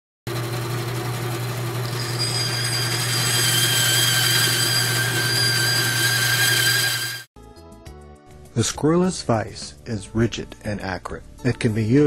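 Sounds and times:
electric motor whining: 0.3s - 7.3s.

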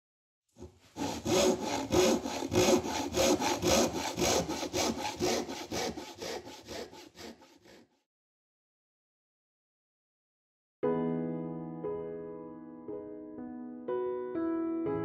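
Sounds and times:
hand saw cutting wood: 0.6s - 8.0s.

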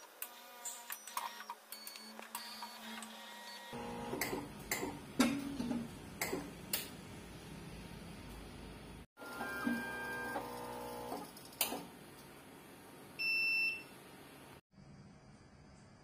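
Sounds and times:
steady machine hum: 3.8s - 11.1s.

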